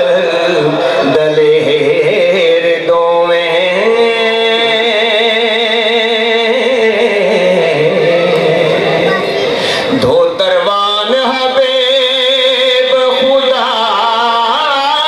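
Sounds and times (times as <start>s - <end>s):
man singing into microphone: 0.0s - 15.0s.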